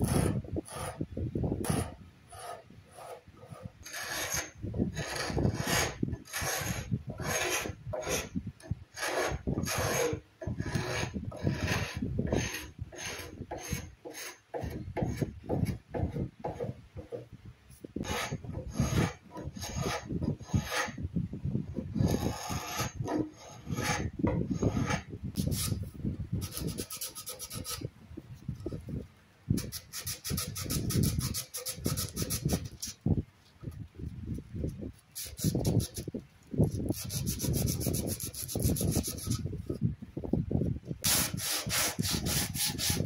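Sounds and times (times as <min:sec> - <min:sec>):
scraper rasping on wood: 0:00.0 - 0:01.0, 0:01.6 - 0:17.3, 0:18.0 - 0:21.0, 0:21.9 - 0:25.8, 0:26.4 - 0:27.9, 0:29.6 - 0:33.0, 0:35.2 - 0:39.5, 0:41.0 - 0:43.0.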